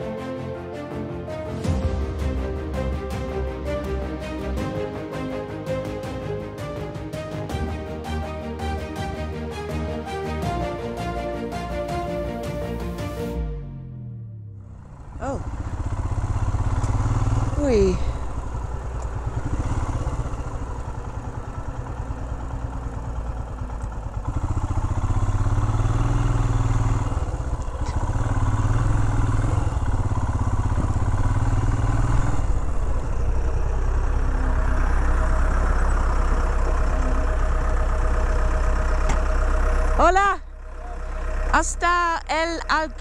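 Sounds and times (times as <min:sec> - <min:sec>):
steady engine hum: 0:00.0 - 0:43.0
motorcycle engine running: 0:13.7 - 0:43.0
clatter: 0:14.7 - 0:40.0.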